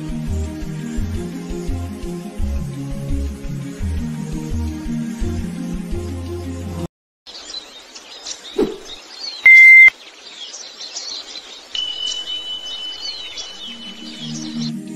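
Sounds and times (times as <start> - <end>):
birds chirping: 7.3 - 14.9
long high beep: 9.5 - 9.9
loud brief beep: 9.5 - 9.9.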